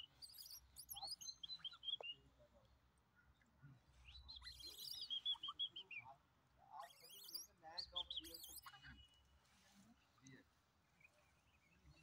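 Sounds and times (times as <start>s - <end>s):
small songbirds chirping: 0.0s - 9.3s, 10.2s - 12.0s.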